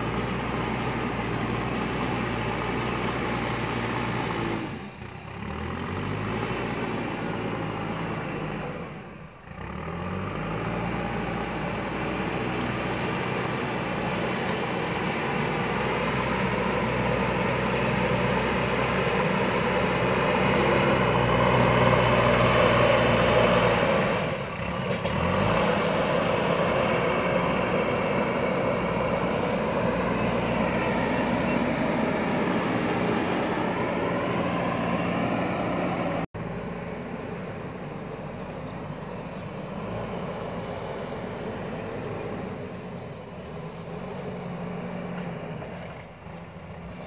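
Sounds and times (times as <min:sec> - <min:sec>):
diesel engine under load: 0:00.0 - 0:47.0.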